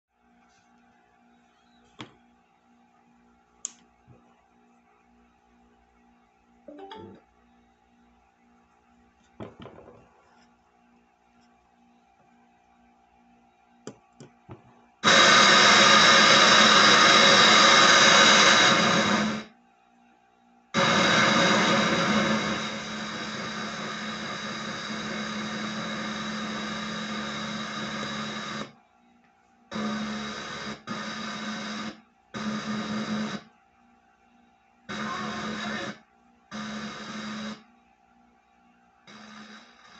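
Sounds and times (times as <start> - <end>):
faint steady hum: 0.1 - 39.9
button clicks: 6.7 - 7.2
radio static bursts: 34.9 - 36.0.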